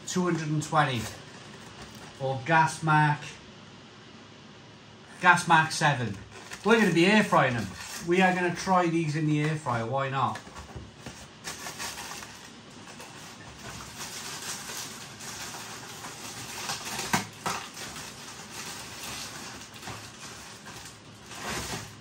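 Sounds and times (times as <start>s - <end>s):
plastic bag crinkling: 0.2s - 2.2s, 6.0s - 8.8s, 10.3s - 22.0s.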